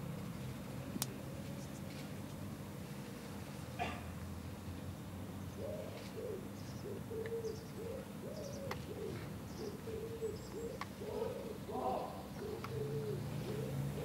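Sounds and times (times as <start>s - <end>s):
pigeon cooing: 5.6s - 14.0s.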